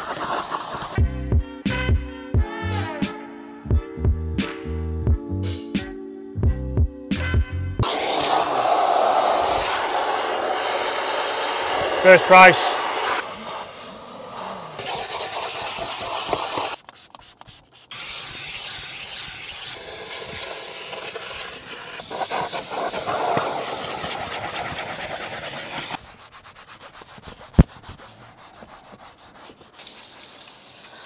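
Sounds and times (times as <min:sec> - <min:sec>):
brush scrubbing surfaces: 0:00.0 - 0:01.0, 0:07.8 - 0:31.0
steamer hissing: 0:00.0 - 0:01.0, 0:07.8 - 0:16.8, 0:17.9 - 0:26.1, 0:29.2 - 0:31.0.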